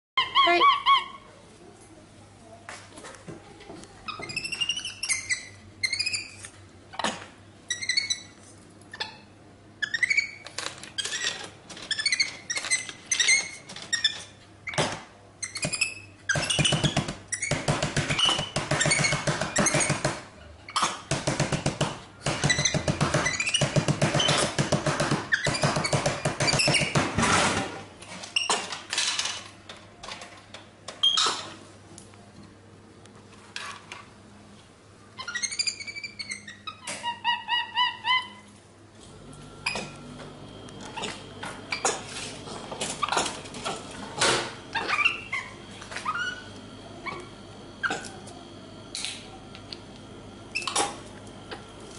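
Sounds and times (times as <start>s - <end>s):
monkey squeaky chirps: 4.1s - 6.4s, 44.8s - 46.5s.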